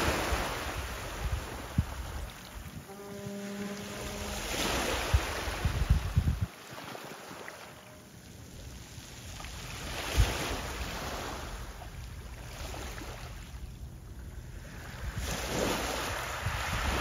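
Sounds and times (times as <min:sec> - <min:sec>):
wind buffeting microphone: 0:00.0 - 0:03.0, 0:03.8 - 0:06.5, 0:14.2 - 0:17.0
small waves rushing: 0:00.0 - 0:17.0.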